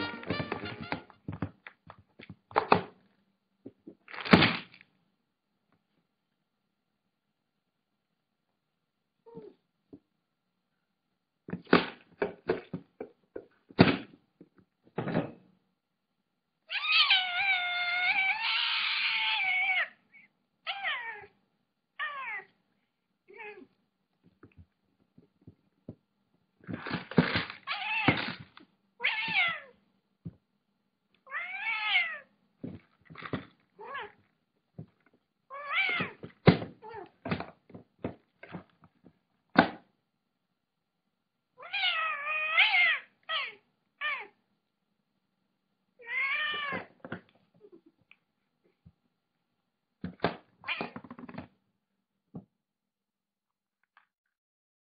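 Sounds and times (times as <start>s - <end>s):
cat meowing: 16.7s - 20.0s, 20.7s - 21.4s, 22.0s - 22.5s, 27.6s - 28.2s, 29.0s - 29.8s, 31.3s - 32.3s, 35.5s - 36.2s, 41.6s - 44.4s, 46.0s - 46.9s.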